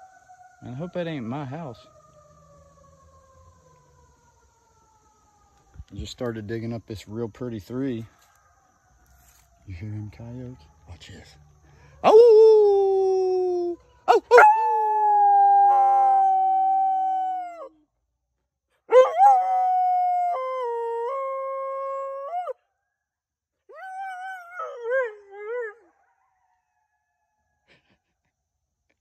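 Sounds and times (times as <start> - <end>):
dog howling: 12.0 - 17.8, 18.9 - 22.6, 23.7 - 25.9.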